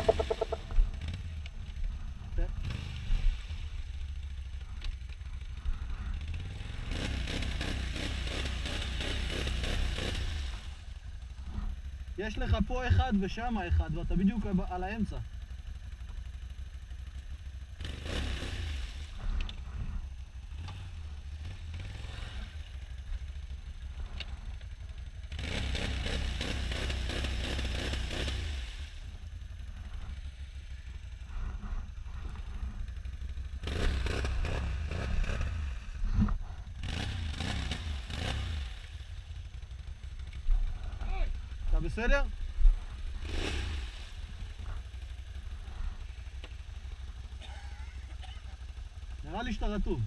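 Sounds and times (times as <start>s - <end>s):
atv engine revving: 0.0s - 50.0s
wheels churning through mud: 25.3s - 29.0s, 29.9s - 40.3s.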